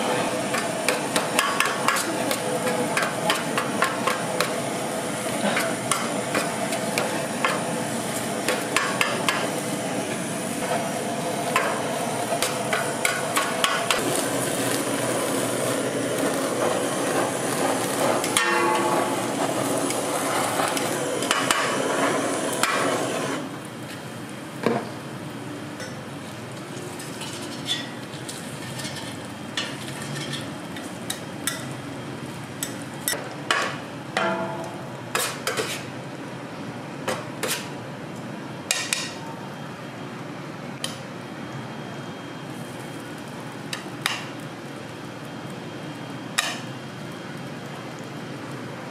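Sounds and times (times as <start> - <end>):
blowtorch hissing: 0.0 - 23.7
meat sizzling: 0.0 - 24.4.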